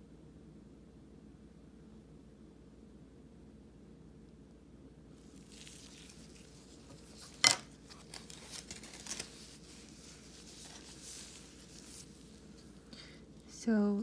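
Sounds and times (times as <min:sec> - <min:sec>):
rustling and crinkling: 0:05.2 - 0:13.6.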